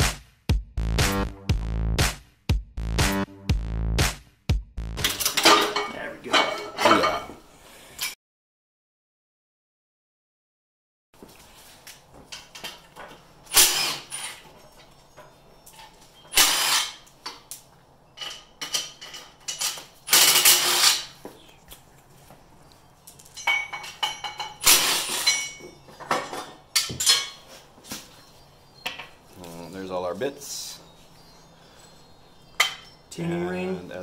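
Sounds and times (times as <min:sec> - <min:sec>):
impact driver on nuts: 0:13.5 - 0:14.4, 0:16.3 - 0:17.0, 0:20.1 - 0:21.1.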